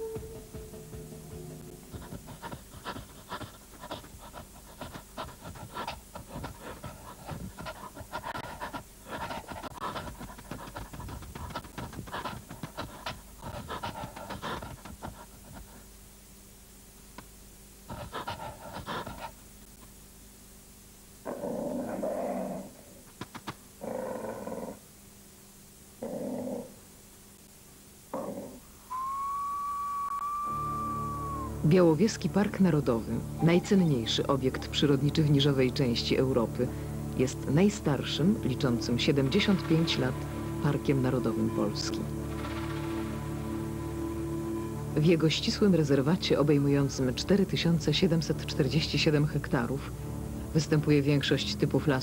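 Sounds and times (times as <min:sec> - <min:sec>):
wolf panting: 0:00.0 - 0:15.9, 0:17.9 - 0:19.4
wolf growling: 0:21.2 - 0:23.0, 0:23.8 - 0:24.8, 0:26.0 - 0:26.8, 0:28.1 - 0:28.6.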